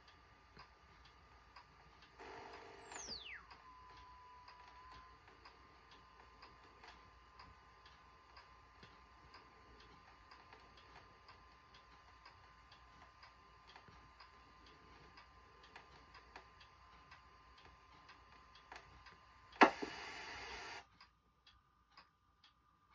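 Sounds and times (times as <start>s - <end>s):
faint steady ticking: 0.0s - 22.9s
sharp click: 19.6s - 20.5s
loud television static hiss: 19.6s - 20.8s.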